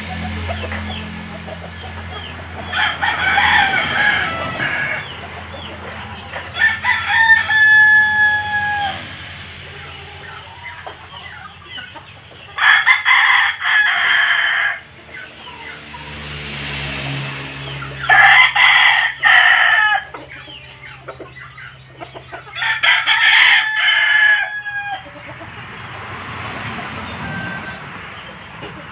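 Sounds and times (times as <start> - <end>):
rooster crowing: 2.6 - 10.7, 12.6 - 14.9, 18.0 - 20.8, 22.5 - 25.2, 26.8 - 28.3.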